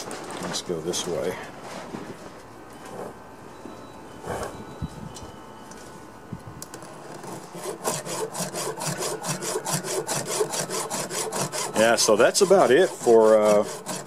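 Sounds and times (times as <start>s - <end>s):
file rasping on saw chain: 7.2s - 14.0s.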